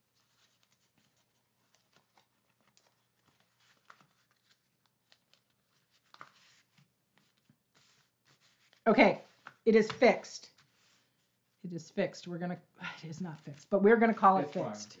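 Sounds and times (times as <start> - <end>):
card stock rustling and ticking: 0.0 - 10.8.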